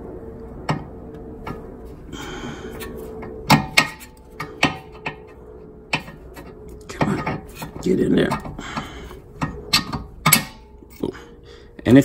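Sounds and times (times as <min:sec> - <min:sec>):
faint steady hum: 0:00.0 - 0:12.0
metal clicks and knocks: 0:03.2 - 0:10.6.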